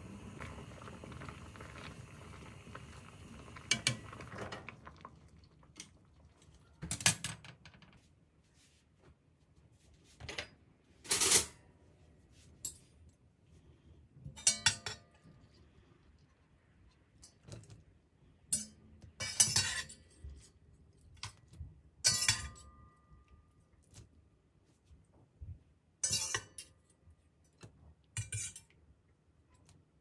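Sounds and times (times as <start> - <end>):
metal utensil clinking on pan and plate: 14.4 - 15.2, 18.6 - 20.1, 22.0 - 23.0, 26.0 - 26.7, 28.2 - 28.7.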